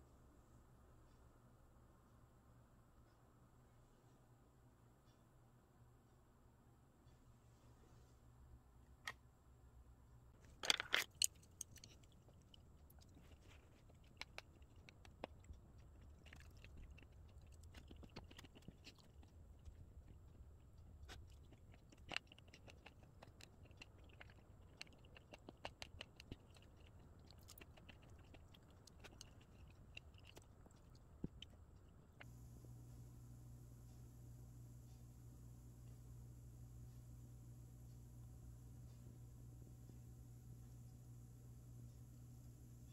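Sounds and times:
quiet chewing: 11.1 - 33.0.

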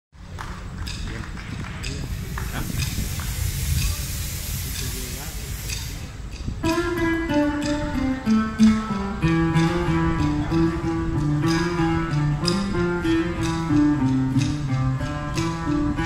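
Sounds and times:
acoustic guitars playing: 5.7 - 16.0.

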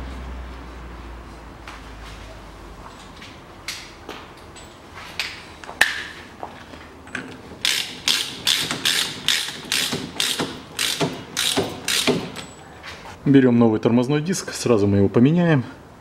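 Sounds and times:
ratchet wrench clicking: 7.6 - 12.4.

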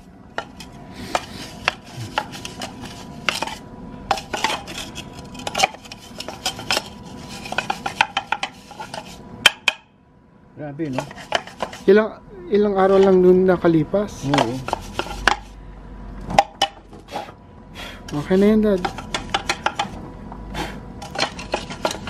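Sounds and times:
brush scraping plastic: 0.0 - 9.3, 10.8 - 12.0, 12.8 - 13.3, 14.1 - 15.6, 18.1 - 20.0, 20.6 - 22.0.

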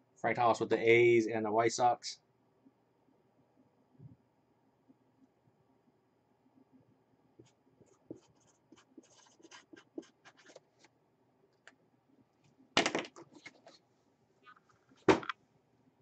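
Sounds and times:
marker scratching on cardboard: 7.4 - 10.9.

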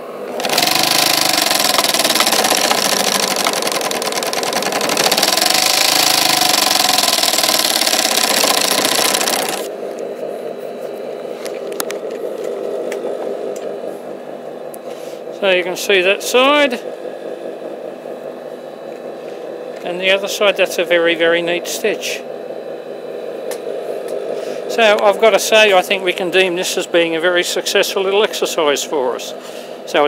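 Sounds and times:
steady machine hum: 0.0 - 30.0
sewing machine rattling: 0.3 - 9.7.

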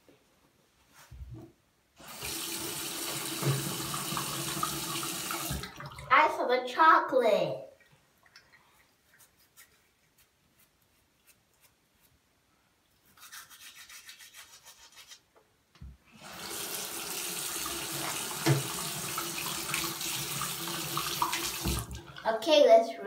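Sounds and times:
tap water running into sink: 2.0 - 6.1, 16.2 - 22.2
toothbrush scrubbing teeth: 8.3 - 12.1, 13.0 - 15.2.

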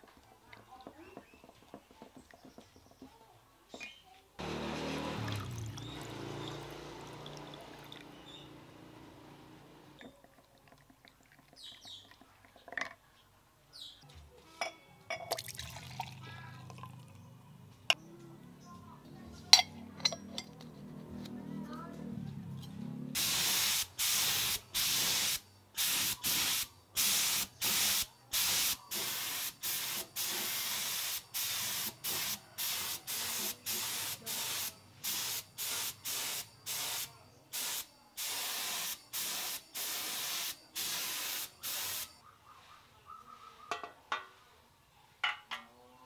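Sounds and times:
spray gun hissing bursts: 23.2 - 42.1.

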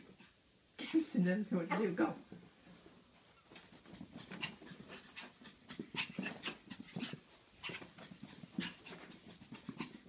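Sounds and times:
dogs panting: 3.5 - 10.0.

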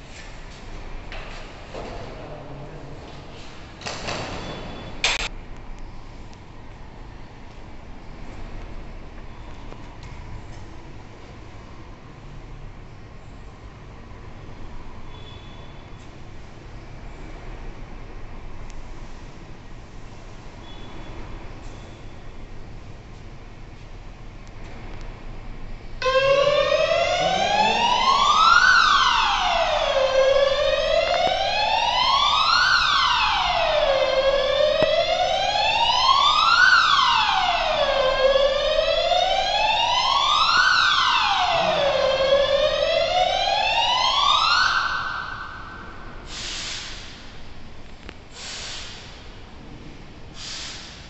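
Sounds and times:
fire alarm siren wailing: 26.0 - 46.2.

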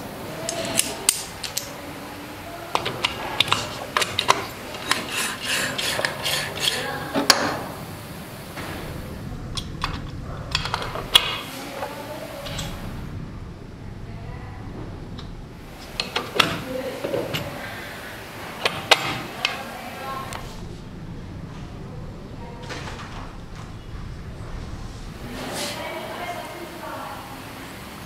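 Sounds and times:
metal gears clinking and scraping: 0.4 - 1.7, 2.7 - 7.0.

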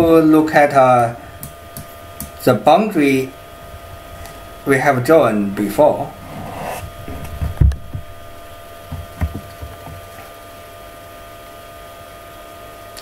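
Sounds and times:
faint steady hum: 0.0 - 13.0
dull knocks: 6.9 - 8.1, 8.8 - 10.1.

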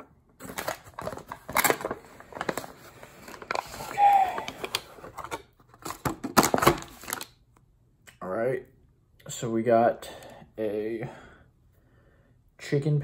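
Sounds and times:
paper wrapper crinkling: 0.4 - 7.4.

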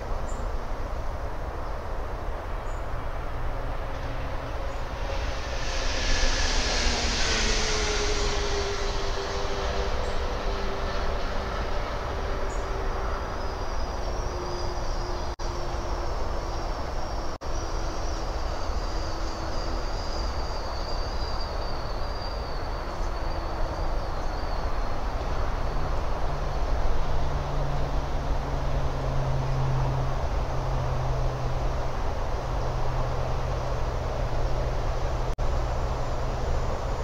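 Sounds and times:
faint high whine: 0.0 - 27.8
distant engine drone: 0.0 - 37.0.

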